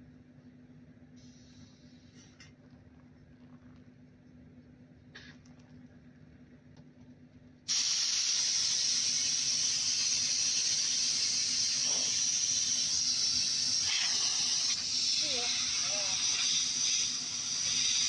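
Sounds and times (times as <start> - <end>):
compressed air hissing from hose: 1.2 - 2.3, 7.7 - 18.0.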